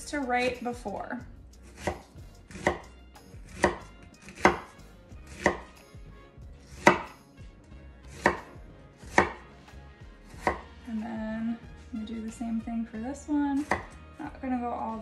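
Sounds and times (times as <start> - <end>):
knife slicing onion: 1.6 - 5.9, 6.6 - 7.2, 8.0 - 9.5, 10.2 - 10.8.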